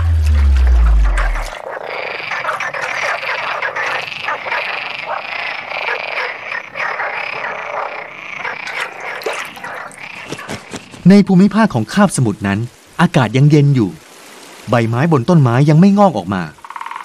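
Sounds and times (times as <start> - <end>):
chorus of frogs croaking: 0.0 - 11.1, 16.4 - 17.0.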